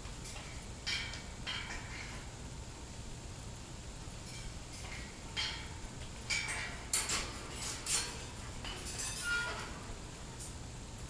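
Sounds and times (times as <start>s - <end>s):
metallic clinks on a wire birdcage: 4.8s - 9.8s.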